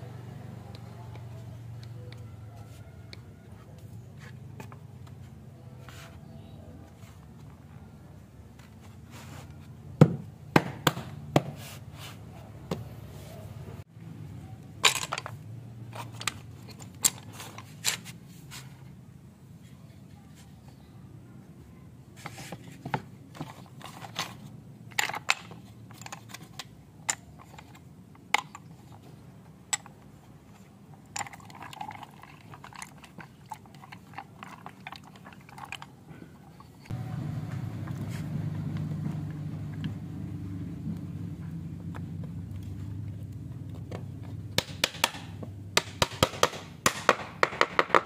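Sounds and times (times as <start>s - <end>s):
low steady hum: 12.3s - 46.8s.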